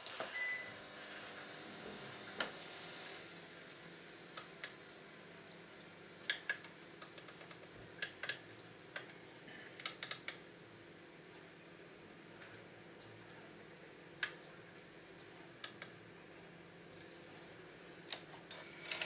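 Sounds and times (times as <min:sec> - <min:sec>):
faint steady hum: 0:00.0 - 0:19.0
small plastic parts clicking: 0:06.3 - 0:10.4.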